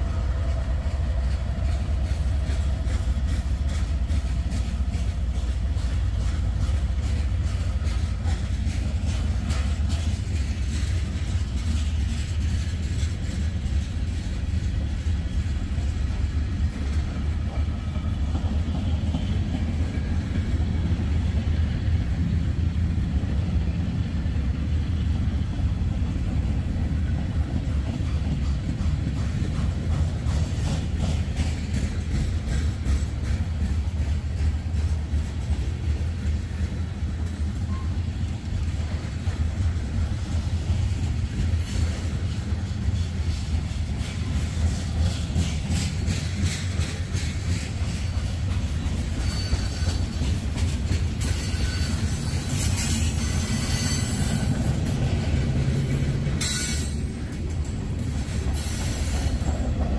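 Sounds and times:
train wheel clicks: 0.0s - 22.6s, 25.7s - 59.9s
freight train rumbling on rails: 0.0s - 59.9s.

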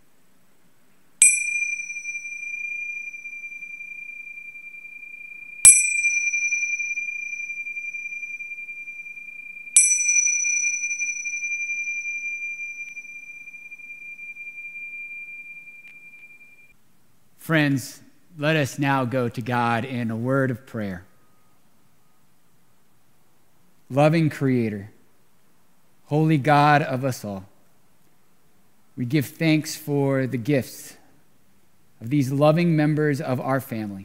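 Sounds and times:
chime ringing: 1.2s - 16.7s.

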